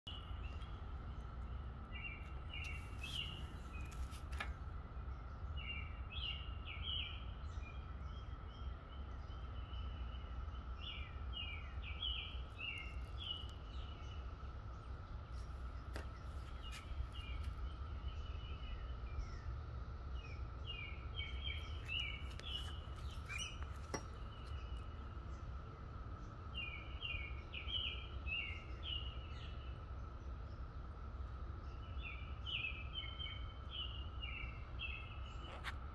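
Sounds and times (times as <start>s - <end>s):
songbird chirping: 0.1s - 35.9s
cicada chorus drone: 4.9s - 35.9s.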